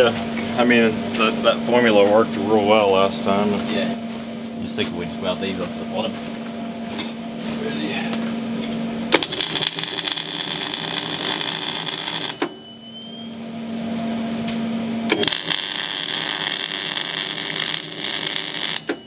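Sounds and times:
steady low hum: 0.0 - 18.8
welding arc crackling: 9.1 - 12.5, 15.1 - 19.0.

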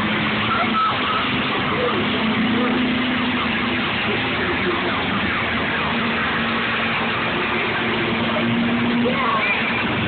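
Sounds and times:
racing car engines: 0.0 - 10.0.

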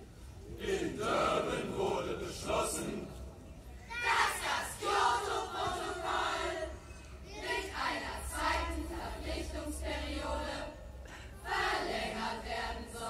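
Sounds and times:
large choir singing: 0.5 - 13.0.

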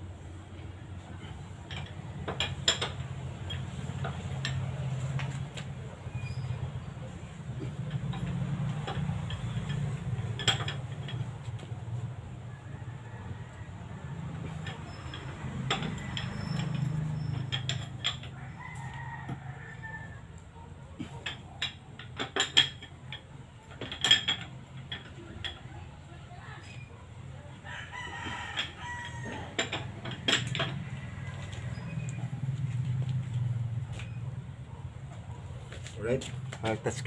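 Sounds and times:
rooster crowing: 12.5 - 15.2, 17.9 - 21.1, 27.5 - 30.0, 30.7 - 32.3
wrench clinking on metal: 14.4 - 18.5.

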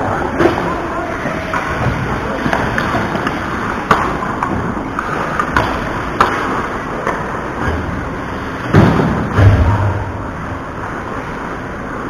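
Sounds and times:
hockey sticks and puck clacking: 1.4 - 7.8.

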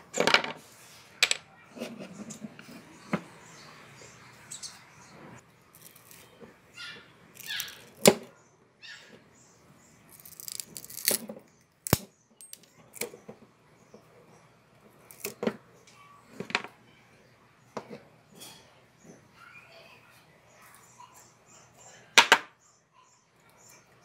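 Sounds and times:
pliers snapping wood: 11.8 - 12.1.

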